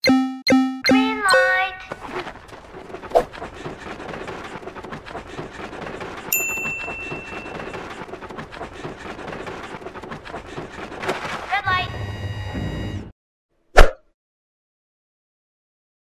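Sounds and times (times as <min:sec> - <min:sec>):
heavy running footsteps: 0:01.9 - 0:11.4.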